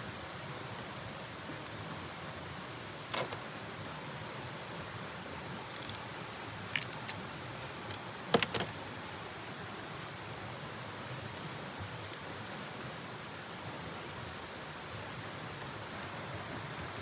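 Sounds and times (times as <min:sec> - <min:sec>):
steady outdoor hiss: 0:00.0 - 0:17.0
prawn shell cracking by hand: 0:05.7 - 0:07.2.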